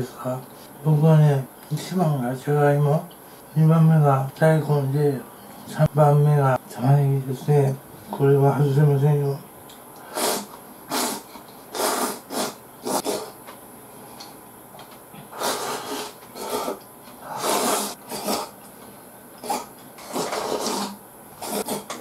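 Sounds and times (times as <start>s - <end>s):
person slurping food: 10.1s - 13.4s, 15.3s - 18.6s, 19.4s - 22.0s.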